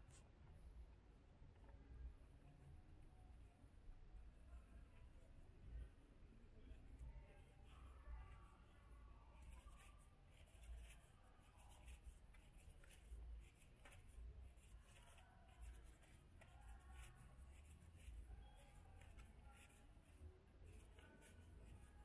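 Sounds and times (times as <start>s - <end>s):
faint scratchy rustling: 6.6s - 22.0s.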